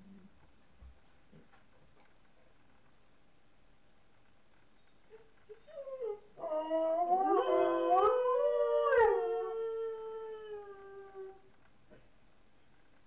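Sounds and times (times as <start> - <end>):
dogs howling: 5.8 - 11.4.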